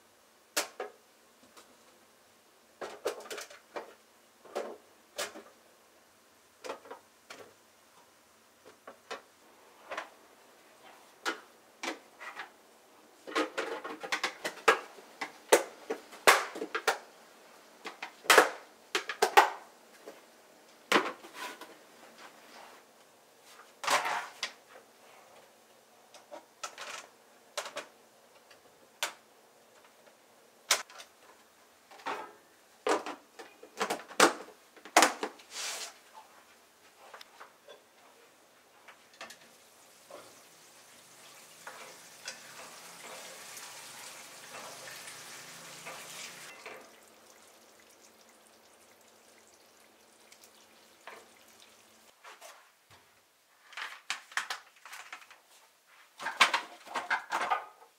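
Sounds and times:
vegetables and plastic containers clattering: 0:02.8 - 0:05.6, 0:06.6 - 0:07.6, 0:13.2 - 0:17.1, 0:20.9 - 0:22.4, 0:23.6 - 0:24.8, 0:30.7 - 0:35.5, 0:52.1 - 0:57.9.

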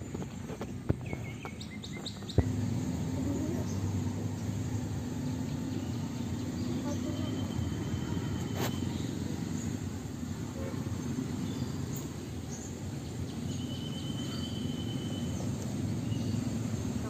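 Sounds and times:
low outdoor rumble: 0:00.0 - 0:17.0
faint high chirps: 0:13.4 - 0:15.7.

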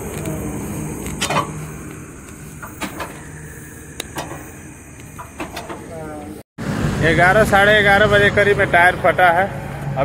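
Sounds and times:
motor vehicle humming: 0:00.0 - 0:10.0
sharp clicks and knocks: 0:01.0 - 0:03.3, 0:03.9 - 0:05.9.

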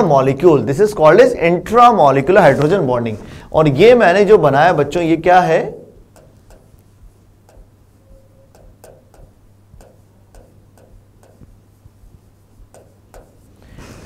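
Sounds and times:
chalk tapping and scraping: 0:02.3 - 0:04.9, 0:05.9 - 0:14.0.

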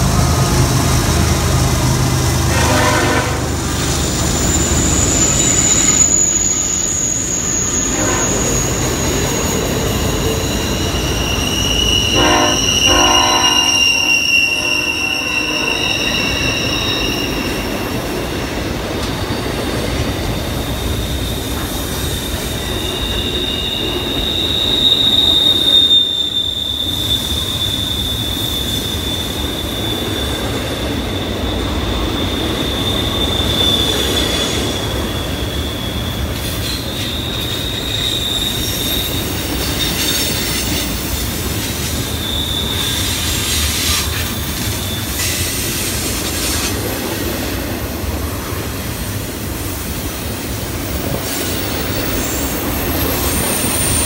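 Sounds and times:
low rumble of wheels on track: 0:00.0 - 0:54.0
wheels squealing against rails: 0:00.0 - 0:54.0.

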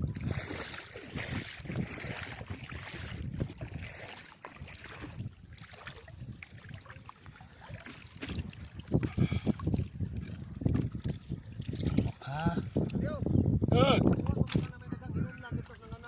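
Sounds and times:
water sloshing and splashing: 0:00.0 - 0:13.0
knocks in water: 0:00.2 - 0:12.8.

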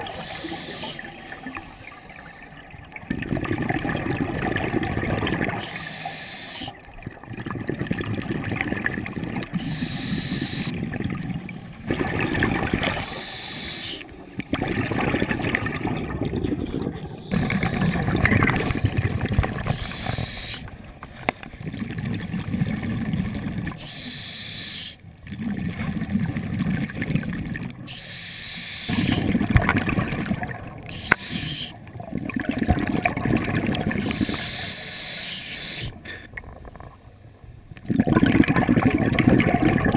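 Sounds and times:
diver exhaling bubbles: 0:07.3 - 0:13.7, 0:14.5 - 0:20.7, 0:28.8 - 0:34.7, 0:37.8 - 0:39.9.

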